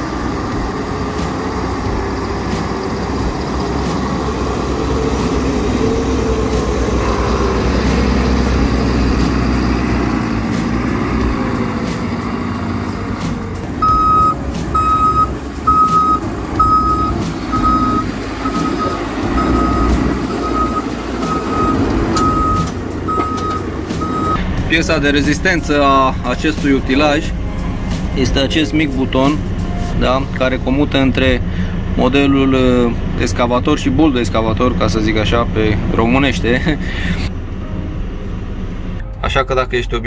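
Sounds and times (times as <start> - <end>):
hydraulics working: 0.0 - 37.6
backhoe diesel engine: 0.0 - 40.0
reversing alarm beeps: 13.8 - 24.4.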